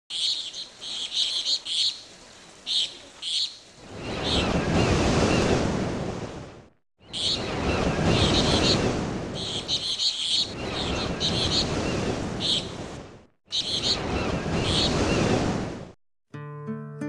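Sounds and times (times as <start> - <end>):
birds chirping: 0.1 - 5.0, 7.0 - 12.8, 13.5 - 15.4
waves washing in: 0.2 - 16.0.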